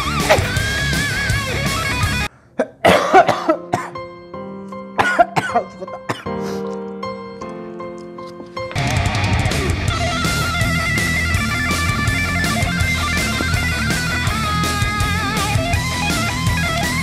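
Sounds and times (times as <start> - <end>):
rock guitar music: 0.0 - 2.3, 8.4 - 17.0
man coughing hard: 0.2 - 0.7, 2.6 - 4.0, 5.0 - 6.3
soft music with held notes: 3.1 - 14.6.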